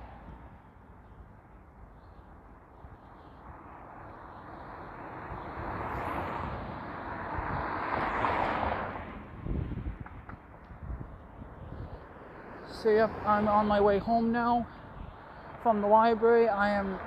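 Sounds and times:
vehicle passing: 3.4 - 17.0.

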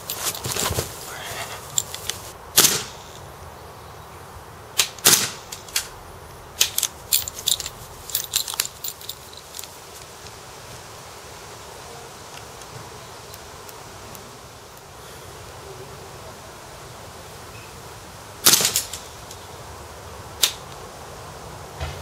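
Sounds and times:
clothing rustling on grass: 0.0 - 12.2
airsoft rifle shots cracking: 2.5 - 3.1, 4.8 - 6.0, 18.4 - 19.0.

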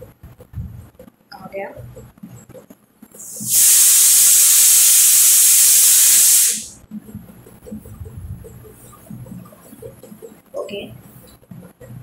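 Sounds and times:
loud steady hiss: 3.2 - 6.8.

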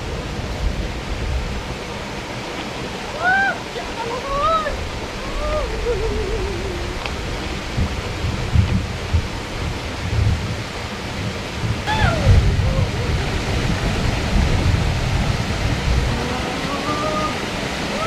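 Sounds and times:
water rushing over rocks: 0.0 - 18.0
brief gliding calls: 11.9 - 13.1.

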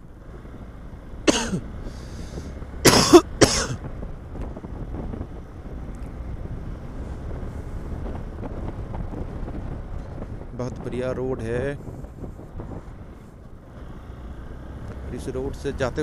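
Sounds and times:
motorcycle rumble: 0.0 - 16.0
person coughing: 1.3 - 1.6, 2.9 - 3.8
wind on microphone: 3.7 - 13.8.

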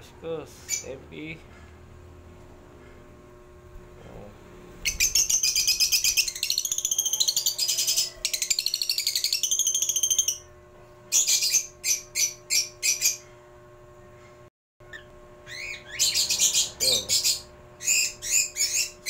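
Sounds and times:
bird twittering: 4.8 - 10.5, 11.1 - 13.3, 14.0 - 19.0.

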